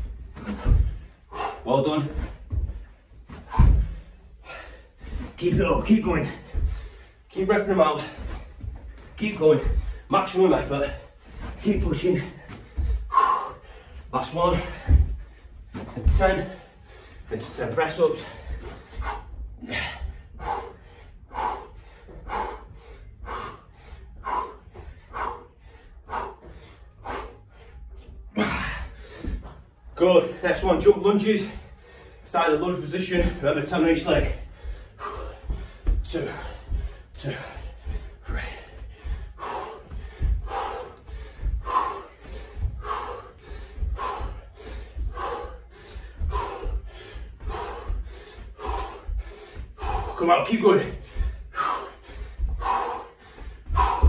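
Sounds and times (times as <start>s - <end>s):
man breathing hard: 0.0s - 54.0s
man gasping: 0.3s - 7.3s, 10.7s - 17.3s, 18.2s - 29.6s, 34.0s - 54.0s.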